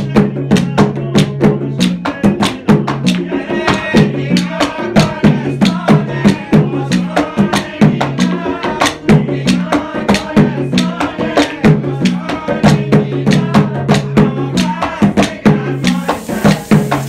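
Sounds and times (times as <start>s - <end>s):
barrel drums beaten: 0.0s - 17.0s
steady hiss: 15.7s - 17.0s.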